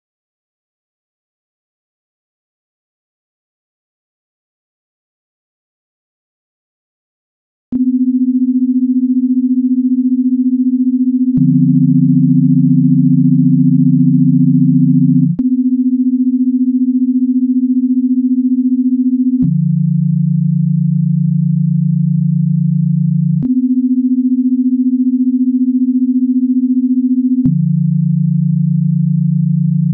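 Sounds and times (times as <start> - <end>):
sine-tone drone: 7.8 - 29.9.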